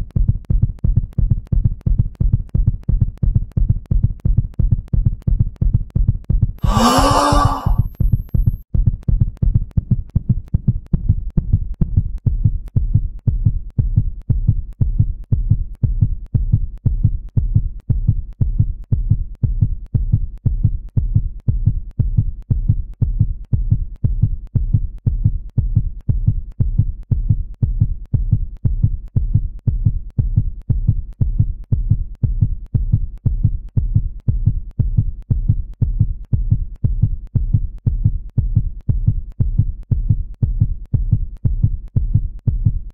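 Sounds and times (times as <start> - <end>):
heartbeat thumps: 15.4 - 42.9.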